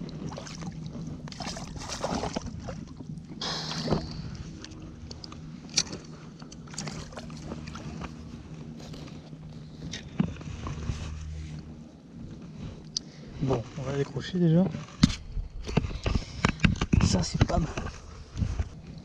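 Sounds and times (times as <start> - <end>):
water sloshing and splashing: 0.0 - 14.2
low hum: 0.0 - 19.0.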